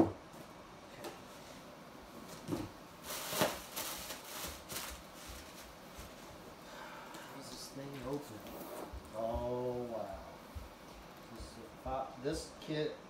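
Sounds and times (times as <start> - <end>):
plastic air pillows crinkling: 2.2 - 6.6.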